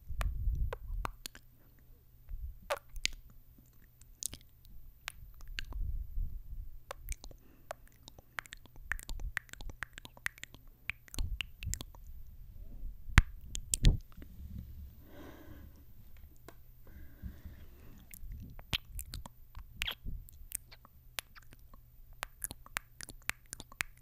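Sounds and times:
wet lip smacking and kissing: 0.2s - 1.5s, 2.7s - 5.8s, 6.9s - 12.1s, 13.2s - 14.2s, 18.1s - 24.0s.

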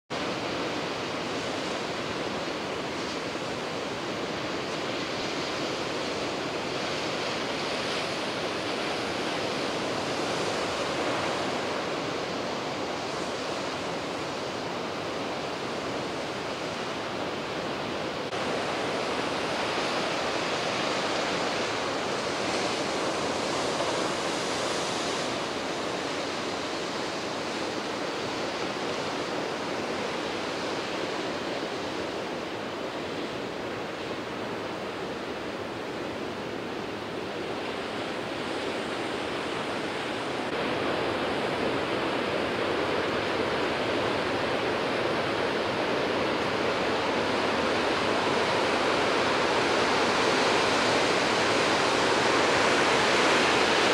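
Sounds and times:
sea surf breaking on beach: 0.1s - 53.9s.

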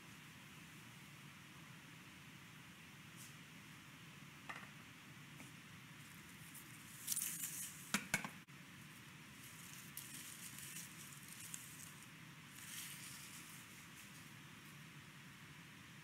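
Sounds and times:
paper rustling: 6.4s - 7.9s, 9.3s - 14.4s.

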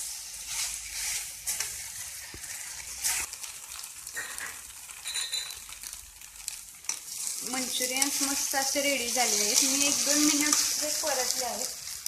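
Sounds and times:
metal spatula scraping pan: 0.0s - 3.4s, 6.9s - 12.0s
food sizzling in sauce: 0.0s - 12.0s.

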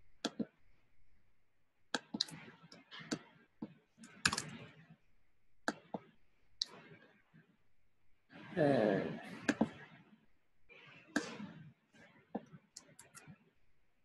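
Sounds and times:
computer keyboard and mouse clicks: 0.2s - 0.5s, 2.0s - 3.2s, 4.0s - 4.7s, 12.4s - 13.4s.

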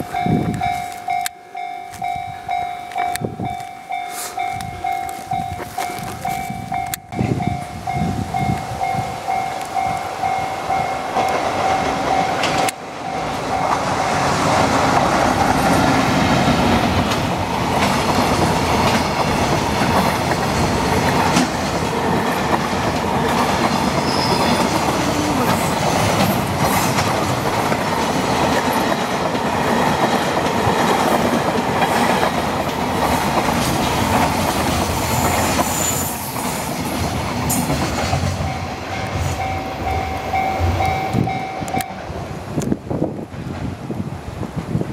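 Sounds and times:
level crossing warning bell: 0.0s - 14.4s, 38.4s - 42.2s
freight train wheels clattering: 0.0s - 42.3s.

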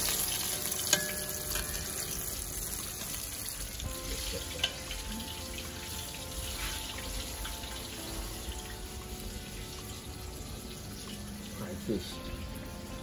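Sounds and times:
fish frying in hot oil: 0.0s - 13.0s.

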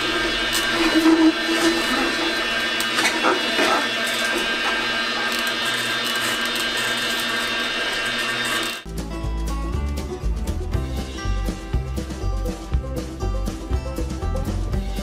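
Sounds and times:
juicer motor whining: 0.0s - 8.9s
music: 8.8s - 15.0s.

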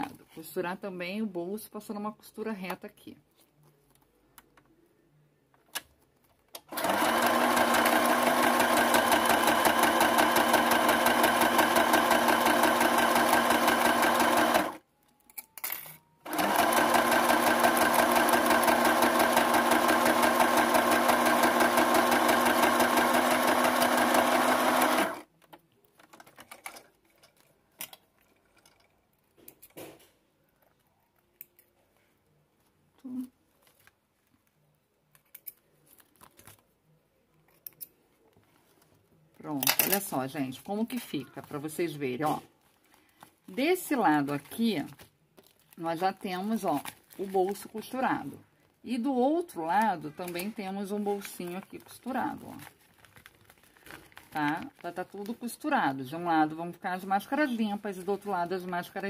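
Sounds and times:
sewing machine stitching: 6.6s - 14.8s, 16.2s - 25.3s.

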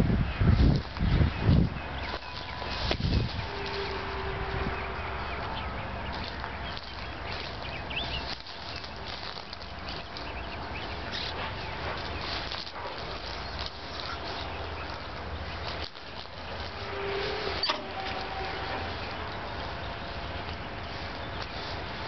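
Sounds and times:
footsteps through dry grass: 0.0s - 22.0s
low steady rumble: 0.0s - 22.0s
small birds chirping: 0.1s - 22.0s.

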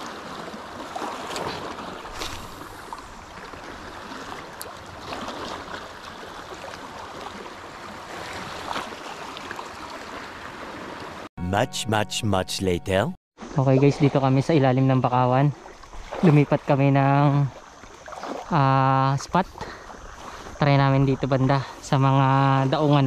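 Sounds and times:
waves lapping against rocks: 0.0s - 11.2s, 15.5s - 16.8s, 17.4s - 21.0s
short water splashes: 0.0s - 11.3s, 15.5s - 21.8s.

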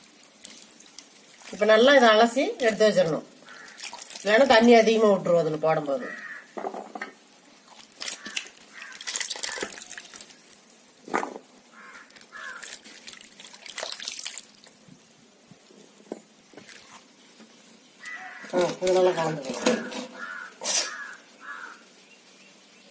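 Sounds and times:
water dripping and trickling: 0.0s - 22.3s
short water splashes: 0.5s - 5.0s, 7.7s - 11.2s, 12.0s - 15.1s.

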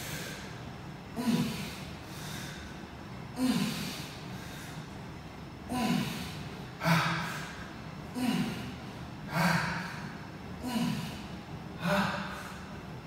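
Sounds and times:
man breathing out with grunts: 3.4s - 4.8s, 5.7s - 12.7s.

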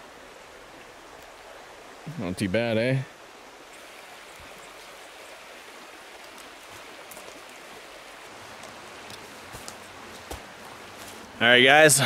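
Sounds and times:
river rushing: 0.0s - 12.0s
boots stepping on log stairs: 9.1s - 11.2s.

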